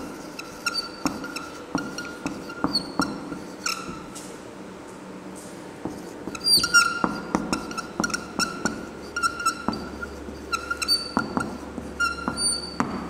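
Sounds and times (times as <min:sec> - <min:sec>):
marker squeaking on whiteboard: 0:00.0 - 0:04.3, 0:05.9 - 0:13.0.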